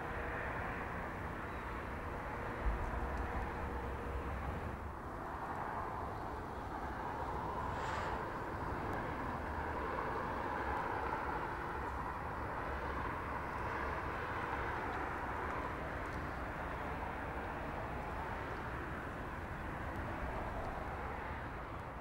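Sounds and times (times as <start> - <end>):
tyre and engine road noise: 0.0 - 22.0.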